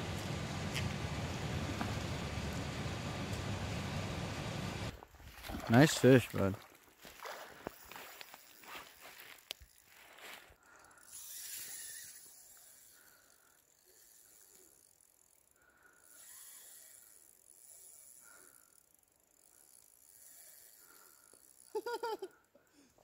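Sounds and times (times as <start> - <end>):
faint hiss of river water: 0.0 - 8.8.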